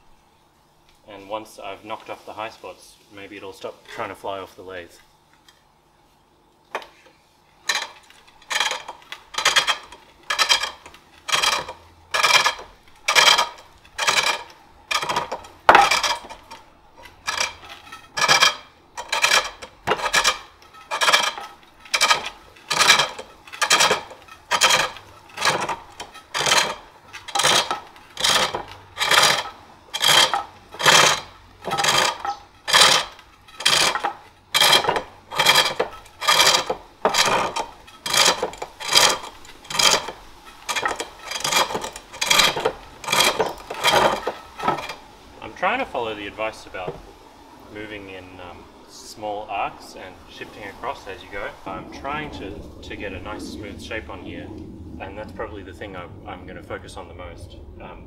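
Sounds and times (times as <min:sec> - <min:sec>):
gouge cutting wood on lathe: 0:07.7 - 0:45.0.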